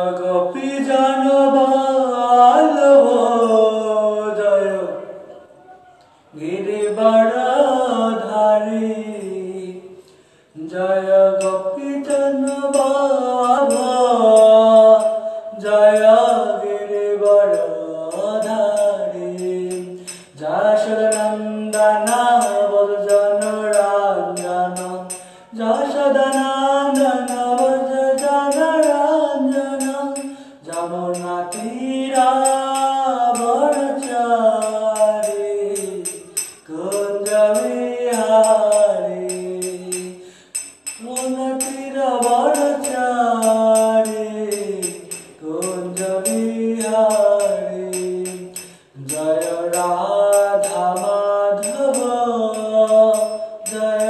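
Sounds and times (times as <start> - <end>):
man singing slowly: 0.0 - 54.0.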